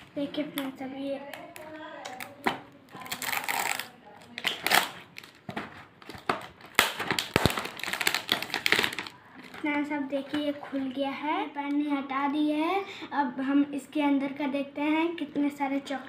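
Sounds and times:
plastic wrap clicks and snaps: 0:00.0 - 0:09.6
plastic wrap crinkling: 0:00.0 - 0:11.8.

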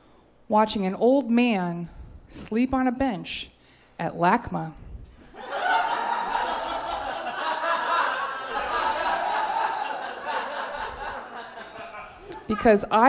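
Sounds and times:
audience laughing: 0:05.2 - 0:12.7.

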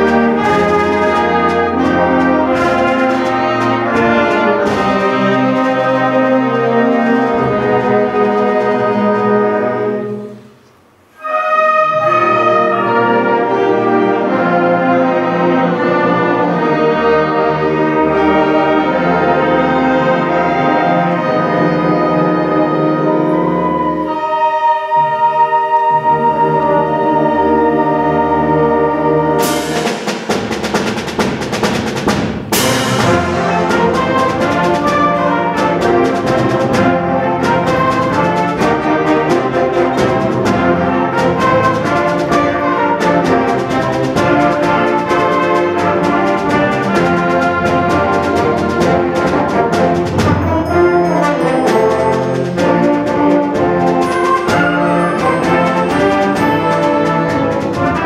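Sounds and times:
rapid percussion strokes: 0:00.0 - 0:25.3, 0:26.2 - 0:58.0
concert band playing: 0:00.0 - 0:58.0.

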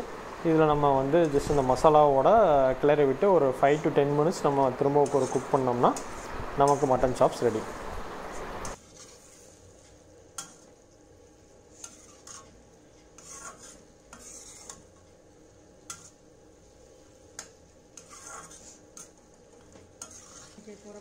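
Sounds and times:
low sizzle: 0:00.0 - 0:21.0
spatula scraping iron pan: 0:04.8 - 0:07.2, 0:08.6 - 0:10.7, 0:11.7 - 0:15.0, 0:15.8 - 0:16.2, 0:17.4 - 0:21.0.

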